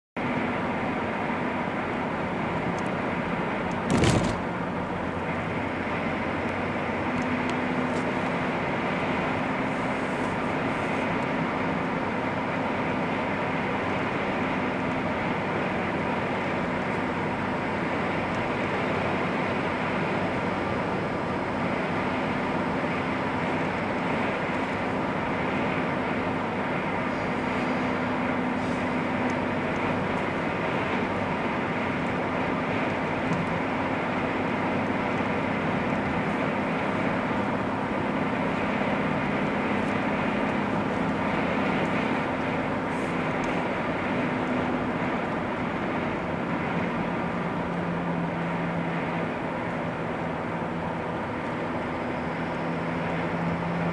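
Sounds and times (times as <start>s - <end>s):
car engine and tyre noise: 0.2s - 53.9s
brief thump: 3.9s - 4.5s.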